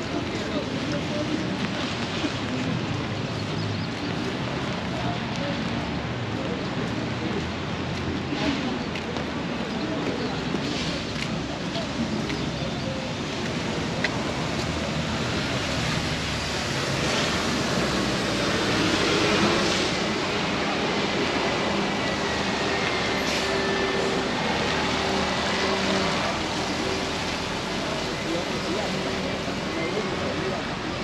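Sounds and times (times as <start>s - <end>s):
tyres hissing on wet road: 10.5s - 12.2s, 13.2s - 31.0s.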